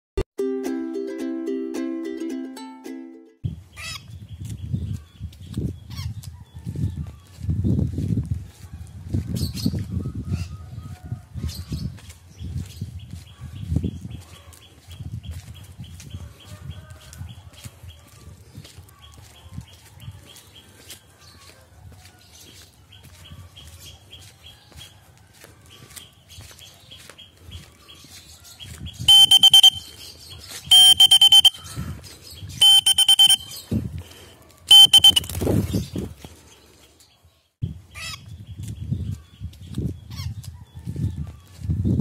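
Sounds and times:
bird shrill calls: 29.0 - 33.7, 34.7 - 35.4.

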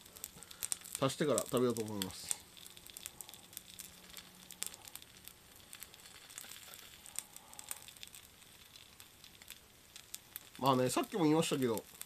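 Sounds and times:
food sizzling on hot plate: 0.0 - 12.0.

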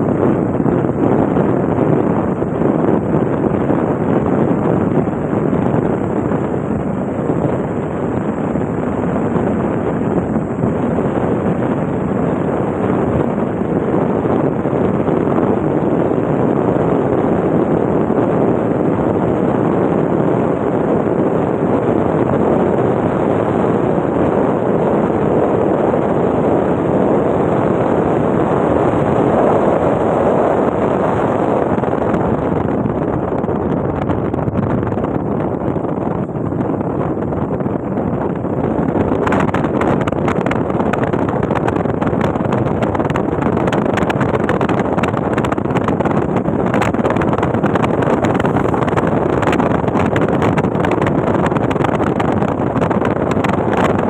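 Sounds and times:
vehicle driving at speed: 0.0 - 54.0
wind buffeting microphone: 0.0 - 54.0
road noise: 27.3 - 51.8.

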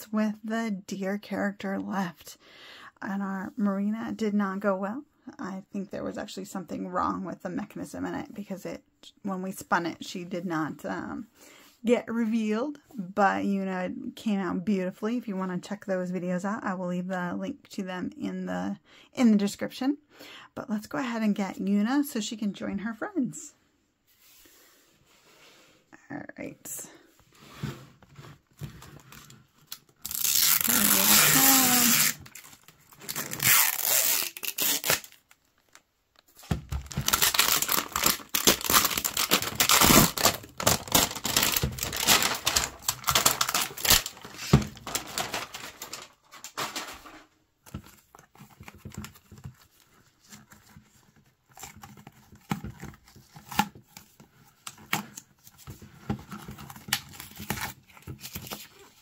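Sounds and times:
rustles and handling sounds: 24.0 - 26.0, 26.7 - 59.0
plastic film crinkling: 29.0 - 47.2
plastic wrap tearing: 29.7 - 35.8, 36.8 - 47.0.

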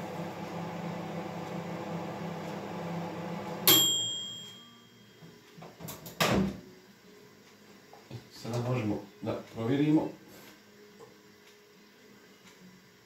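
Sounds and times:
microwave timer ringing: 0.0 - 5.4
microwave oven humming: 0.0 - 5.8.

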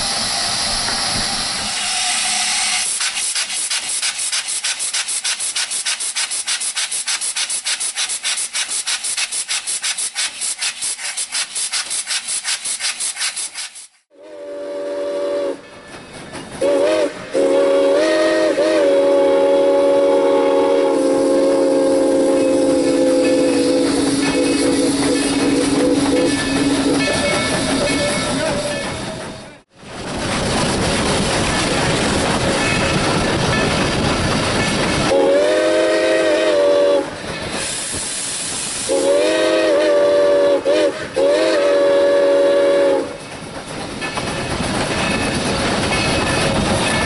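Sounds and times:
loud air hiss: 0.0 - 14.1, 35.4 - 43.0
air tool clattering: 2.6 - 14.0
steam whistle blowing: 14.1 - 15.6, 16.6 - 27.0, 35.1 - 37.2, 38.8 - 43.2.

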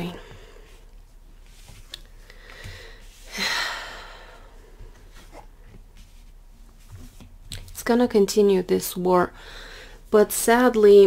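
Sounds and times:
person sighing: 2.4 - 4.5.

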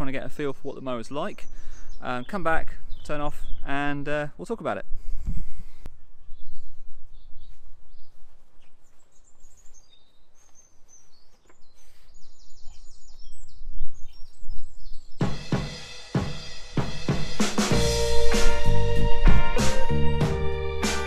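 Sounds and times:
birds chirping and singing: 0.0 - 4.2, 5.7 - 15.4
wind rumble on microphone: 5.0 - 8.4, 12.6 - 15.2
loud rhythmic sound: 15.2 - 21.0.

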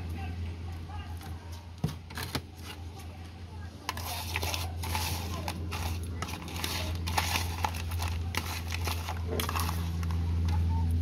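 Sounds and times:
shells rustling and clicking: 3.8 - 10.2
fork scraping plastic bowl: 3.9 - 10.2.

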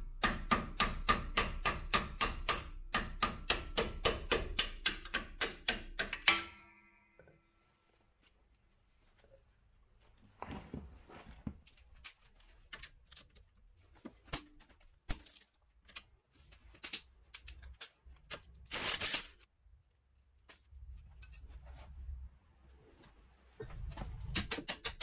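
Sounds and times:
metal tools clinking and knocking: 6.0 - 6.9, 16.8 - 18.0, 20.5 - 21.6.

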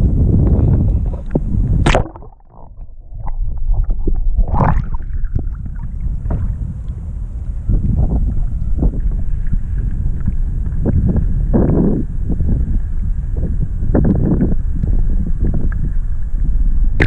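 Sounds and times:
wind on microphone: 0.0 - 17.0
splash into water: 1.8 - 5.4
water sloshing: 1.8 - 6.6.

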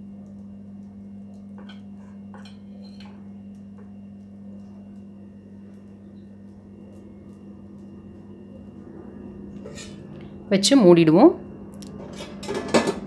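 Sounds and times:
steady low hum: 0.0 - 13.0
steel bowls clinking on metal: 1.6 - 3.2.

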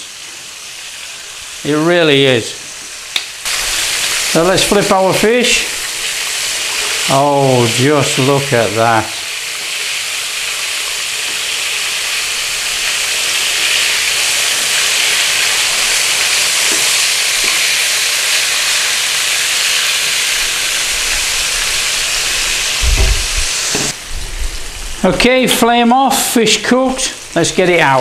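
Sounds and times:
fish frying in hot oil: 0.0 - 28.0
low bump: 22.8 - 23.9.

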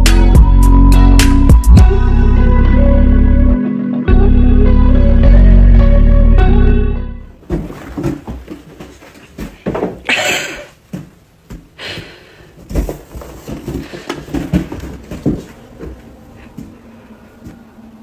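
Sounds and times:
balloon and paws bumping: 7.4 - 10.2.

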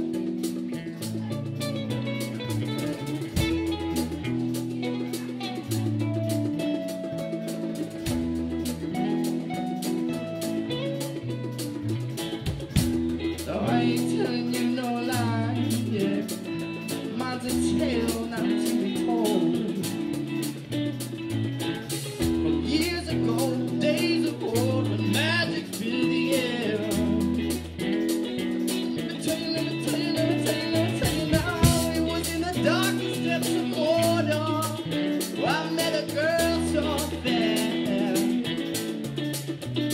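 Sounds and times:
bass guitar: 0.0 - 39.9
drum kit steady beat: 0.0 - 39.9
electric guitars: 0.0 - 39.9
man singing: 13.2 - 20.8, 22.2 - 39.1.

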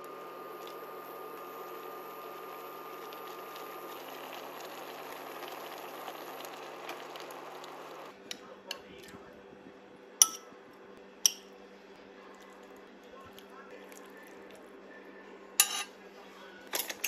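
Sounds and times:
soup bubbling in a pot: 0.0 - 8.2.

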